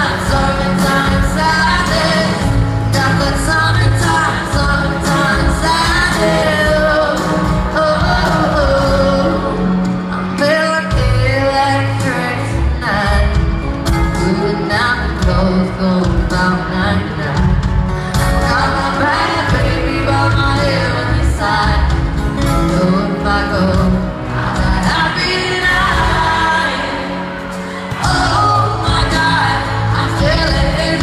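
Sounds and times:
band accompaniment with bass: 0.0s - 31.0s
woman singing into a microphone: 0.0s - 31.0s.

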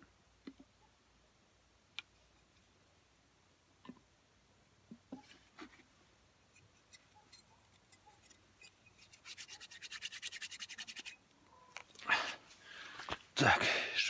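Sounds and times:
hands rubbing together: 9.0s - 11.2s.

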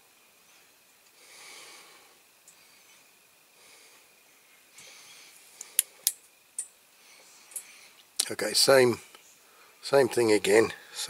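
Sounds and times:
person breathing quietly: 1.1s - 6.1s, 6.9s - 8.1s, 9.0s - 9.8s, 10.7s - 11.0s.

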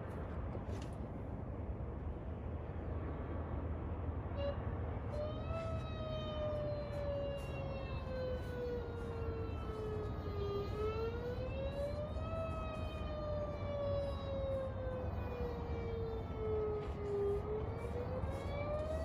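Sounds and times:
warning siren wailing: 4.2s - 19.0s.

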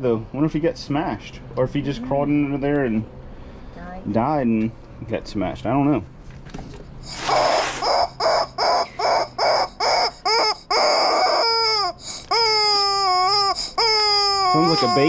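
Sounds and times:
rubber chicken toy squeaking: 7.0s - 15.0s.

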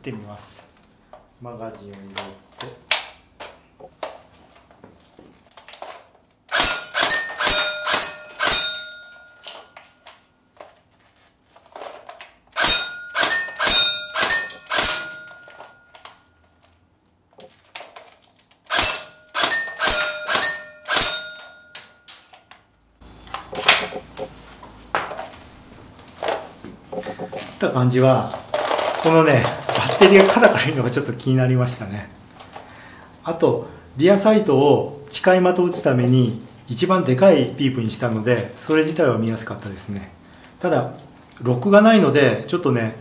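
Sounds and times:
airsoft gun firing: 6.5s - 8.8s, 12.6s - 15.6s, 18.7s - 21.4s
pellets hitting steel targets: 6.5s - 10.0s, 12.6s - 16.0s, 18.7s - 22.3s.

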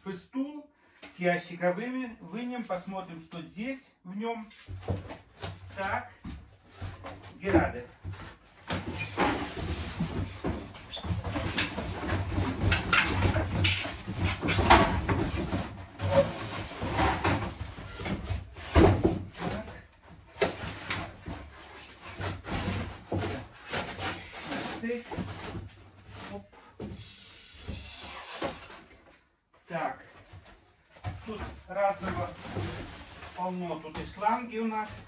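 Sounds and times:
cardboard rustling and scraping: 8.0s - 19.8s, 20.4s - 26.4s, 30.2s - 35.0s
metal frame knocks and bumps: 8.7s - 19.7s.

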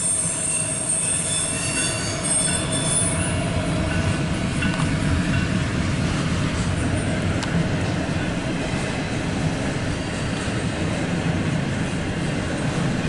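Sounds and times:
high wheel squeal: 0.0s - 3.5s
train wheels rumbling on rail: 0.0s - 13.0s.

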